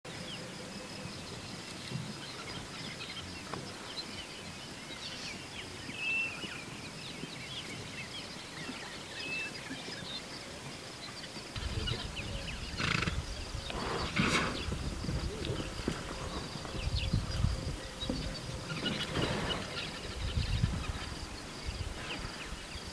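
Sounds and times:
small birds chirping: 0.2 - 22.9
high insect drone: 9.0 - 22.9
loud animal calls: 11.6 - 14.6.

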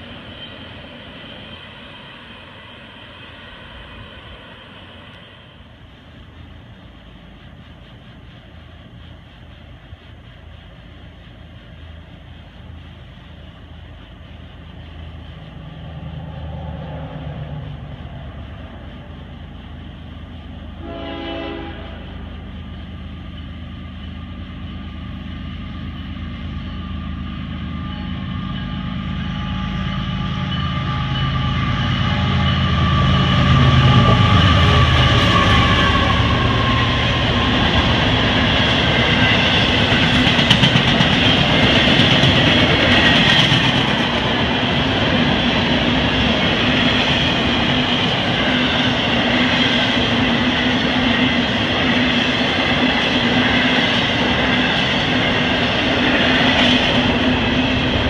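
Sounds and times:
diesel locomotive engine rumble: 0.0 - 58.0
train horn blast: 20.8 - 22.3, 27.7 - 37.0
freight cars rolling on rails: 27.4 - 58.0.

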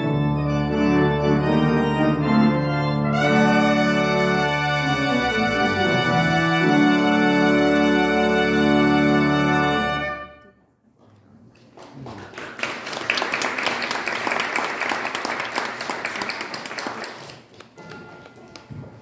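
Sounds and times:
organ and trumpets chord: 0.0 - 10.6
congregation applauding: 11.7 - 19.0.

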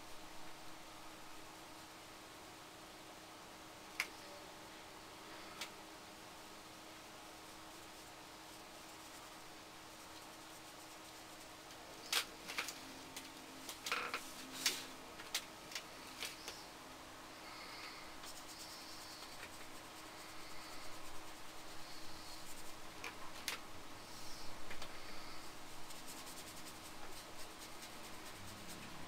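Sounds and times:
paintbrush strokes on paper: 7.3 - 11.7, 17.4 - 22.9, 24.0 - 29.0.

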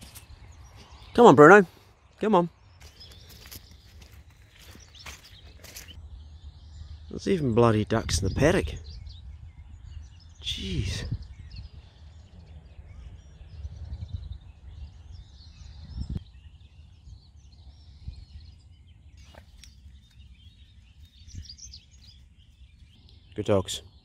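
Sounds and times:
small birds chirping: 0.0 - 24.0
wind on microphone: 7.8 - 23.0.

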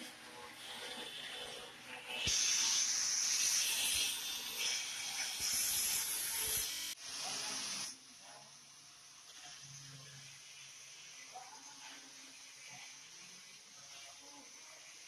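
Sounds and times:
angle grinder grinding metal: 0.7 - 7.0.

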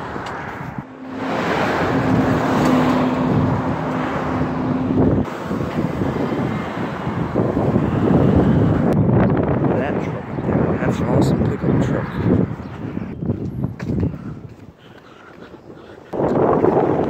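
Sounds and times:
vehicle engine passing: 0.0 - 13.2
traffic noise: 0.0 - 17.0.

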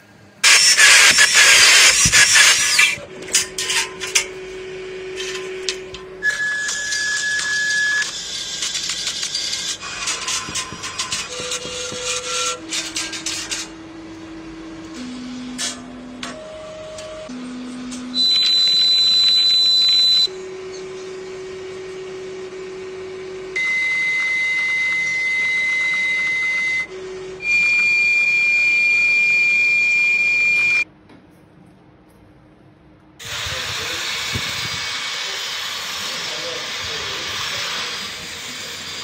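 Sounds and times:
small electric motors whining: 0.4 - 16.3, 33.2 - 39.0
broad hissing rush: 33.2 - 39.0.

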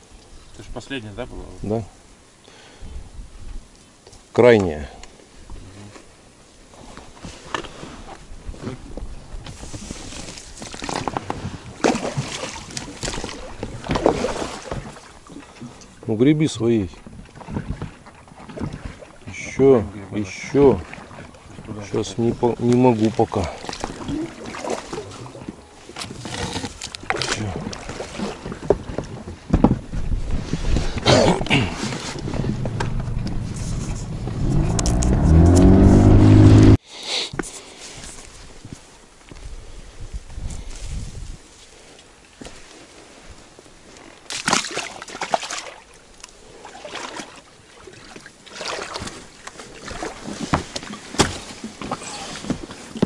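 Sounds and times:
oars splashing in water: 9.5 - 16.0, 16.9 - 36.7, 43.8 - 53.0
oars knocking on boat: 27.7 - 31.1, 31.8 - 35.5.

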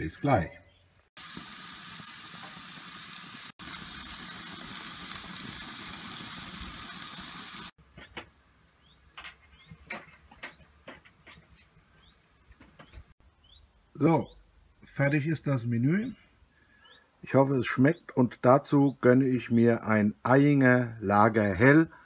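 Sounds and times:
meat sizzling on a grill: 1.2 - 7.8
faint bird chirps: 12.8 - 14.4, 16.6 - 17.1.

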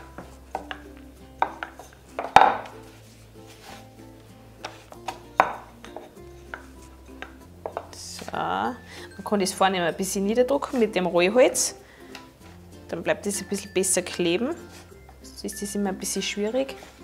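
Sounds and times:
rolling pin on wooden board: 0.0 - 3.9, 4.6 - 8.4
light background music: 0.0 - 17.0.

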